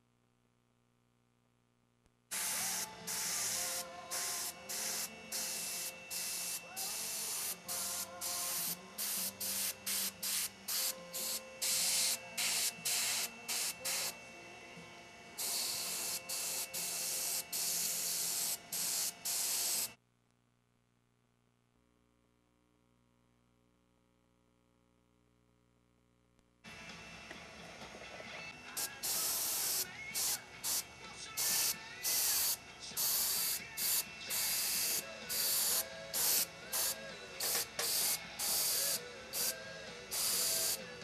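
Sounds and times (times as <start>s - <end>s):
faint steady hum: 0.0s - 9.3s
airbrush hissing bursts: 2.3s - 14.2s, 15.4s - 20.0s, 28.7s - 41.0s.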